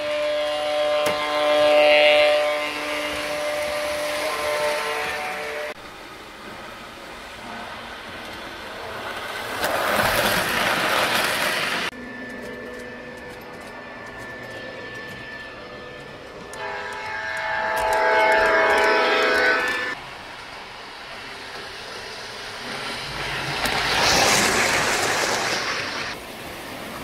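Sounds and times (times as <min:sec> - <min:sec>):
model train horn: 0:00.0 - 0:05.8, 0:12.0 - 0:20.0
model train wheels rumbling: 0:00.0 - 0:27.0.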